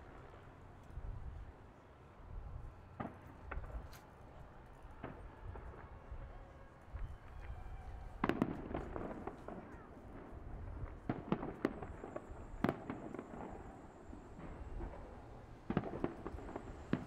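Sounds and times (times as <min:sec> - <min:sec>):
fireworks bangs and crackles: 0:02.6 - 0:04.0, 0:04.9 - 0:17.0.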